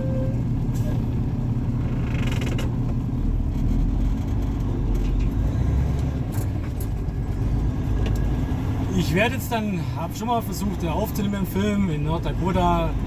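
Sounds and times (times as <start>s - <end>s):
diesel engine rumbling: 0.0s - 13.0s
light ticks and rattles: 1.8s - 7.4s.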